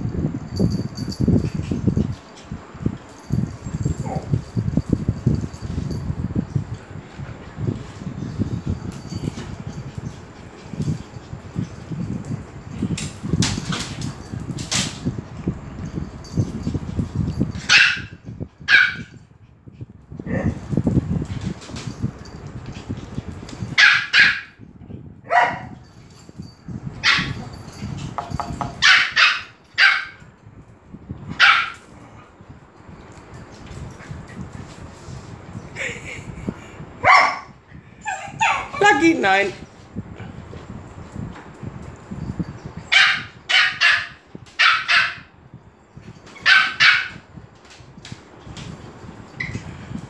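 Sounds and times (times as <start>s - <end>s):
small dogs yapping: 28.8s - 30.2s, 37.0s - 39.0s, 42.9s - 45.3s, 46.4s - 47.2s.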